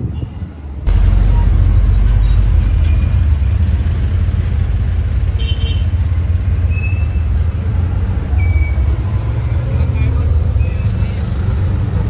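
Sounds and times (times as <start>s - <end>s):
motor rickshaw engine rumbling: 0.9s - 12.0s.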